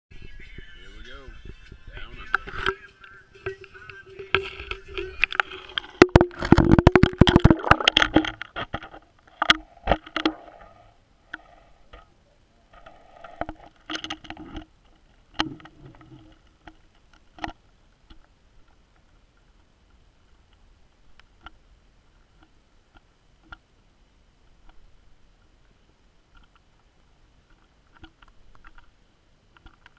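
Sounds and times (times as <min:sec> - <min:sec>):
muffled underwater knocks: 0:04.4 - 0:10.4.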